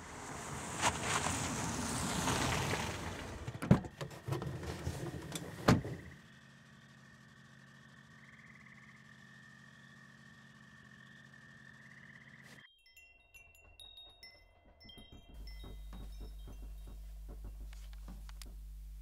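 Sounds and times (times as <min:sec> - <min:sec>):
car passing rush: 0:00.0 - 0:03.6
small knocks: 0:15.4 - 0:18.7.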